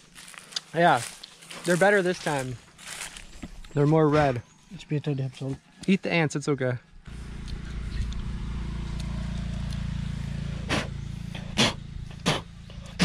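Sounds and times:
vehicle engine passing by: 7.1s - 13.0s.

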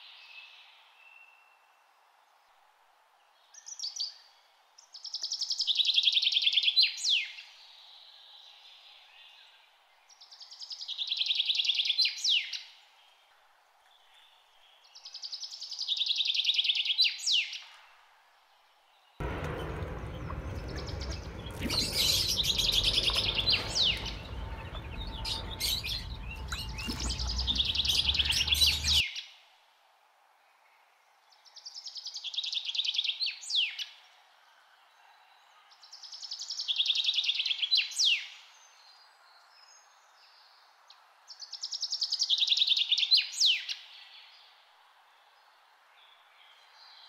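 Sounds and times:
low rumble: 19.2s - 29.0s.

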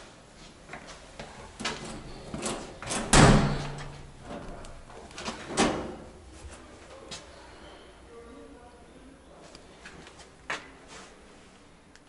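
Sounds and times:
door clicks and rattles: 1.6s - 4.6s
door bang with low ringing hum: 3.1s - 3.8s.

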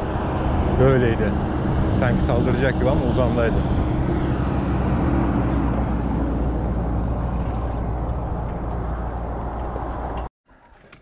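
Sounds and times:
truck passing: 0.0s - 10.3s
wind rumble on microphone: 0.0s - 10.3s.

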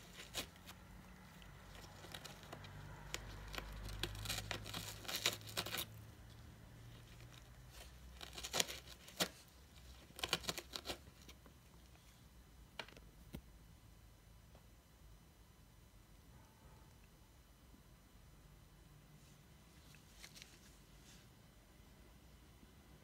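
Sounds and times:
cat tearing cardboard: 0.0s - 11.5s.

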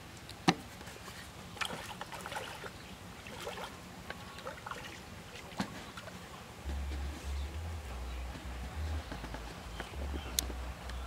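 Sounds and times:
fish splashing at the surface: 1.6s - 6.2s.

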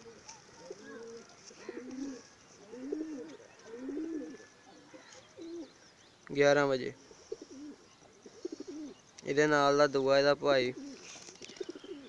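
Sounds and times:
pigeons cooing: 0.0s - 5.8s, 6.7s - 9.0s, 10.6s - 12.0s.

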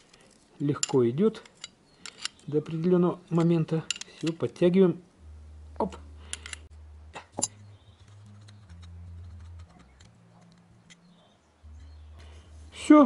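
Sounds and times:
faint low hum: 4.8s - 13.0s
sharp metallic clicks: 5.8s - 6.7s.

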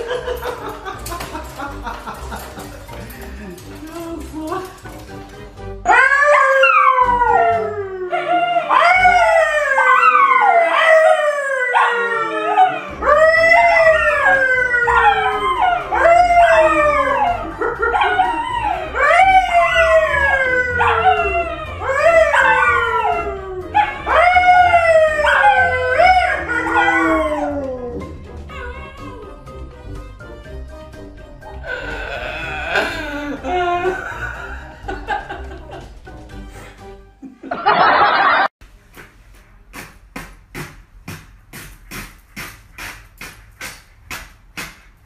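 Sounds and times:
dogs howling: 5.8s - 29.6s
man howling: 5.9s - 29.4s, 31.6s - 34.5s.

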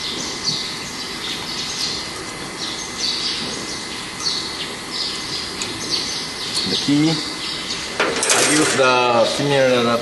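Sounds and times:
bird chirping: 0.0s - 8.0s
steady background noise: 0.0s - 10.0s.

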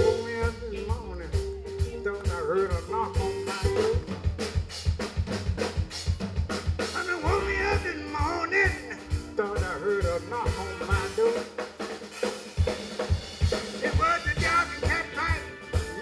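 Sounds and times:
lead line with bending notes: 0.0s - 4.4s
keyboard: 0.0s - 4.6s, 6.9s - 11.5s, 13.2s - 16.0s
guitar: 0.0s - 4.8s, 6.9s - 16.0s
drum kit beat: 0.0s - 16.0s.

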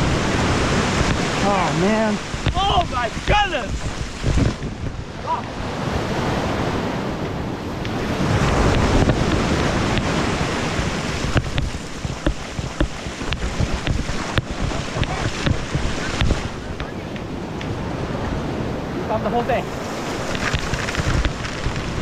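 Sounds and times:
surf breaking on shore: 0.0s - 22.0s
wind buffeting microphone: 0.0s - 22.0s.

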